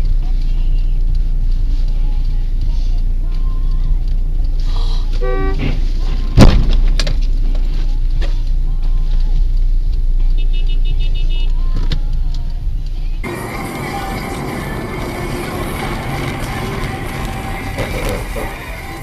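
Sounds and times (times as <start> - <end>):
engine and road rumble: 0.0 - 19.0
car collision bang: 5.6 - 7.1.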